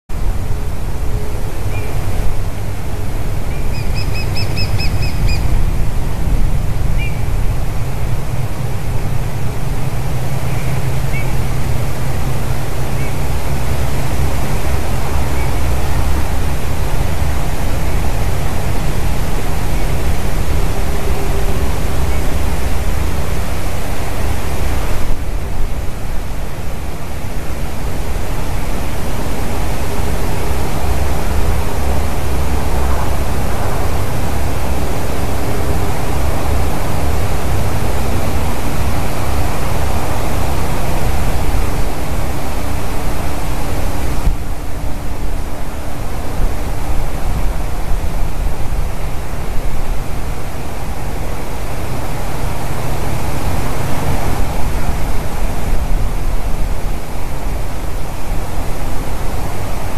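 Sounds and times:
wind rumble on microphone: 0.1 - 59.9
woodpecker whistled calls: 3.5 - 5.5.

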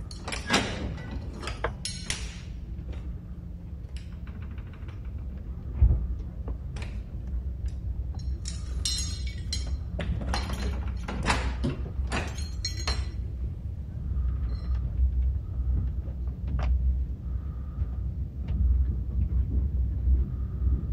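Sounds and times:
keys jingling: 8.2 - 11.4, 12.1 - 13.2.

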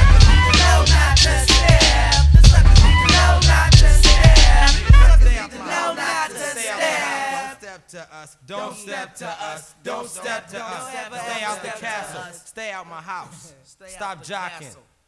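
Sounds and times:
bass-heavy beat: 0.0 - 5.4
hip-hop vocals: 0.0 - 14.9.

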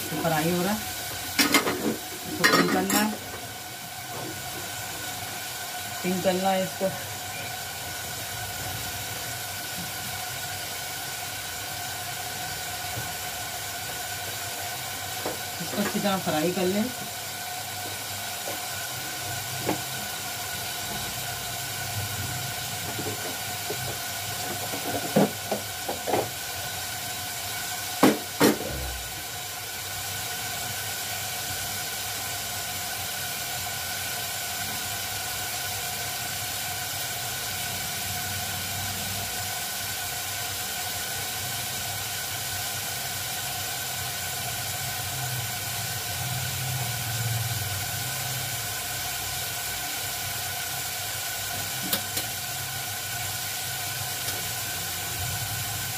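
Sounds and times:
meat sizzling in oil: 0.0 - 55.9.

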